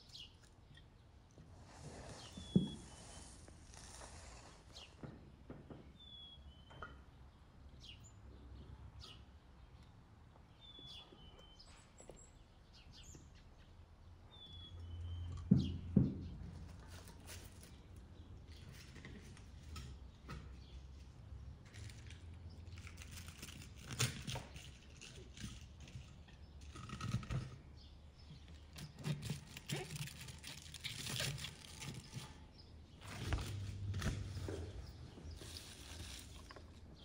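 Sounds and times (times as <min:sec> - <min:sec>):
cabbage rustling and crackling: 0:28.4 - 0:37.0.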